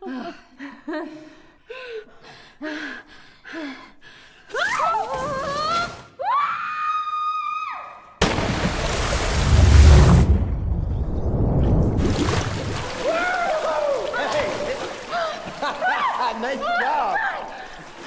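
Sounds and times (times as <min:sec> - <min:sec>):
young women screaming: 0:06.2 - 0:08.0, 0:13.0 - 0:14.4
bodies splashing into pool: 0:08.2 - 0:18.0.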